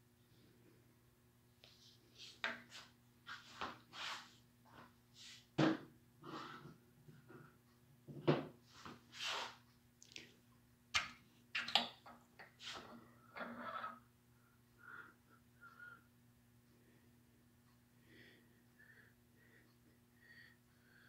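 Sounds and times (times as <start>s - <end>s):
steady low hum: 14.0s - 21.0s.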